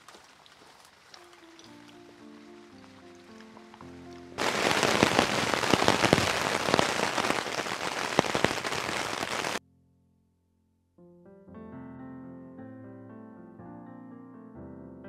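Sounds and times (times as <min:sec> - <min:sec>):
heavy rain falling: 0:04.4 - 0:09.6.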